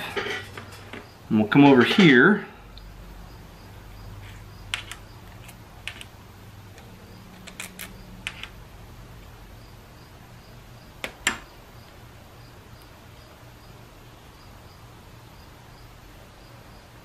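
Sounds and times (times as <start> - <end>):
steady low hum: 0.0 - 17.0
metal tools clicking and tapping: 4.7 - 6.1, 6.8 - 8.6.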